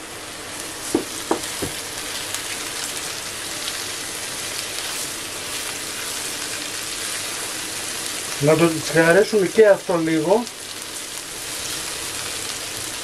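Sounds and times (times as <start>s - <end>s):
food sizzling in frying pan: 0.0s - 13.0s
wooden spatula knocking pan: 1.0s - 1.8s.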